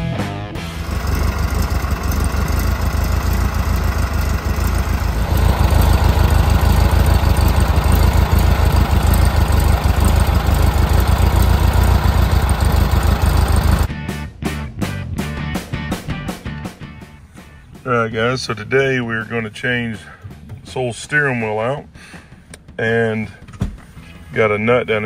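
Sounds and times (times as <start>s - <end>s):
car engine rumbling: 0.7s - 13.9s.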